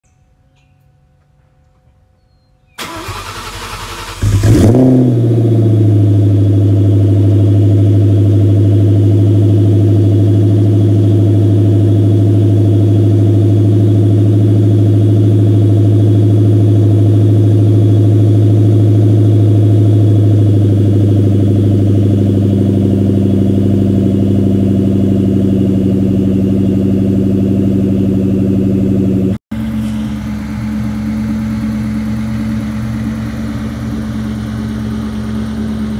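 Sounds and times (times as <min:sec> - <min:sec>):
starter motor cranking: 0:02.8 - 0:04.6
car engine idling: 0:02.8 - 0:35.9.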